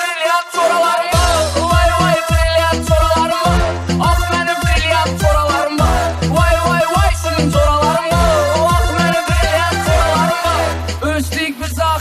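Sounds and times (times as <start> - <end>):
electronic beat: 1.1 - 11.4
deep kick drum hits: 1.2 - 10.1
held melody: 1.2 - 11.0.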